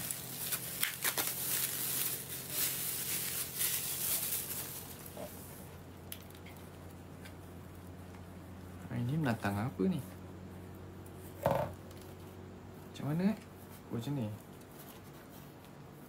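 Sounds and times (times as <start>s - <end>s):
clicks and crackles: 0.0s - 5.2s, 6.0s - 8.3s
packaging rustling and crinkling: 0.0s - 5.5s
faint low hum: 0.0s - 16.0s.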